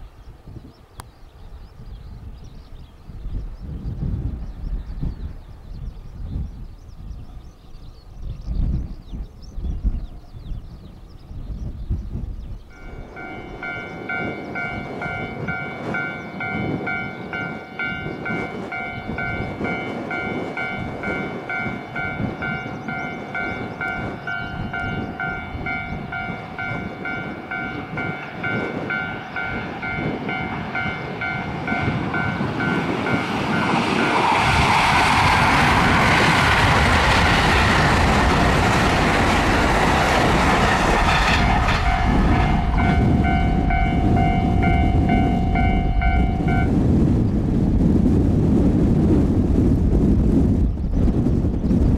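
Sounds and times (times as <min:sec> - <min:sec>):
electric train passing: 0:12.6 - 0:50.1.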